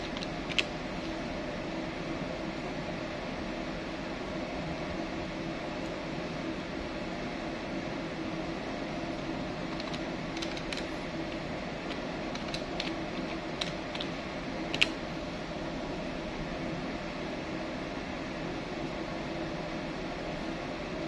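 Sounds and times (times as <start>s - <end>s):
calculator keys clicking: 0.0s - 0.7s, 9.7s - 10.9s, 11.9s - 14.1s, 14.7s - 15.0s
machinery hum: 0.0s - 21.0s.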